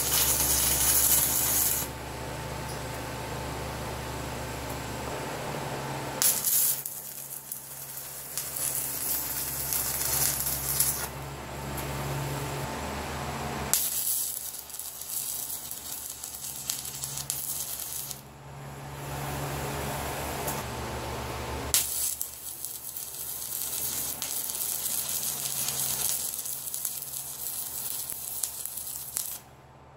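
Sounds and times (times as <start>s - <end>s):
crackling arc welding hiss: 0.0s - 1.9s, 6.2s - 11.2s, 13.7s - 18.3s, 21.7s - 29.5s
steady low hum: 0.0s - 21.8s.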